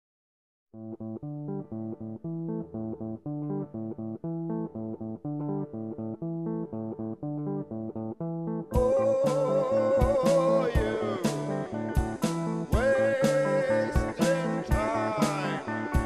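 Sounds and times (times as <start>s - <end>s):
plucked guitar riff: 0.8s - 16.0s.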